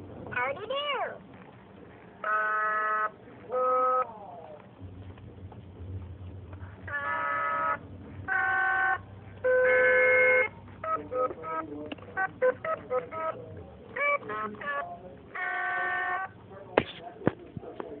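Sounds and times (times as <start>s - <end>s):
plush toys singing electronic notes: 2.2s - 4.6s, 6.8s - 16.4s.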